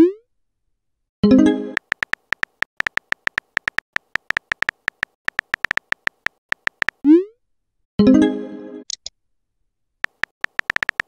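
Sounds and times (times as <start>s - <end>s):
keyboard typing ticks: 1.8s - 7.0s, 10.0s - 11.0s.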